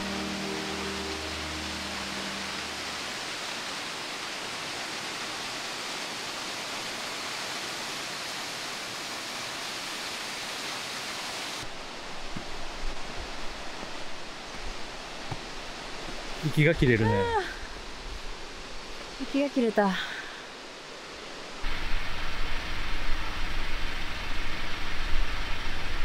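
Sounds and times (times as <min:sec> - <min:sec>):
waterfall rushing: 0:00.0 - 0:18.9, 0:19.5 - 0:26.0
footsteps on stone steps: 0:12.2 - 0:16.4.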